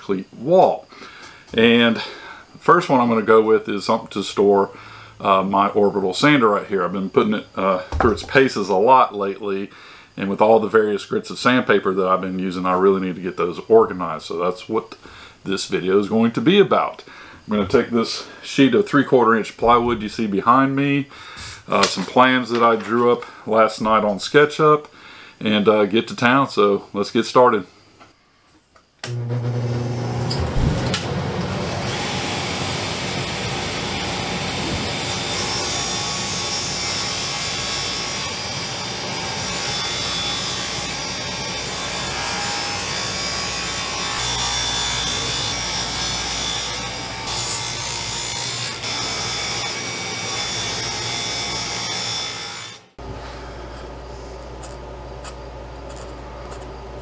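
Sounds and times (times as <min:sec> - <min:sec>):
background hum: 0:00.0 - 0:29.1, 0:52.9 - 0:57.0
table saw cutting plywood: 0:29.1 - 0:53.0.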